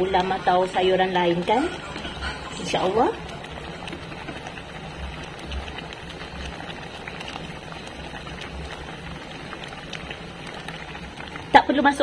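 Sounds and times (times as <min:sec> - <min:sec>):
gravy boiling and popping: 0:00.0 - 0:12.0
low steady hum: 0:00.0 - 0:12.0.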